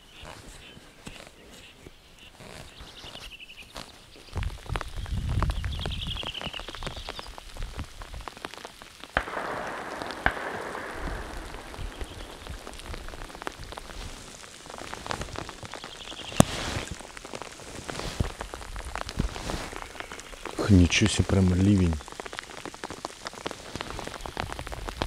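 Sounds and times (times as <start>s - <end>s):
raindrops tapping near microphone: 2.4s - 25.0s
rain falling: 4.2s - 25.0s.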